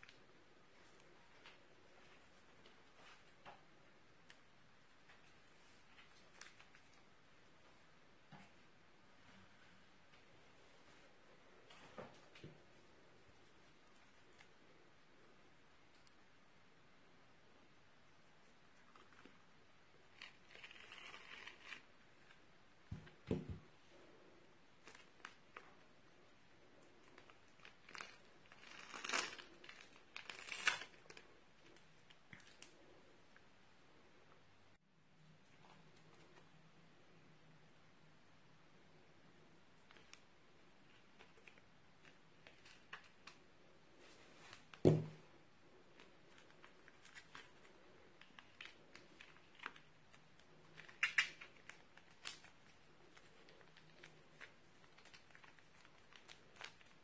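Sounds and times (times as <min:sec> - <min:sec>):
plastic piping bag crinkling: 0:18.8 - 0:33.0, 0:39.8 - 0:57.0
plastic bag crinkling: 0:26.7 - 0:32.8.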